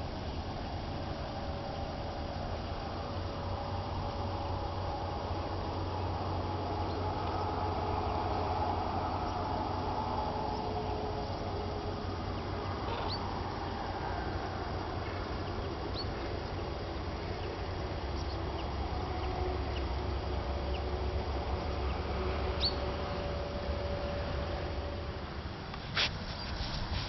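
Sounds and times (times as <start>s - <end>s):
steady low rumble: 0.0s - 27.0s
cranes calling in the distance: 5.8s - 24.2s
small birds chirping: 12.1s - 13.8s, 15.0s - 20.0s, 21.6s - 22.9s.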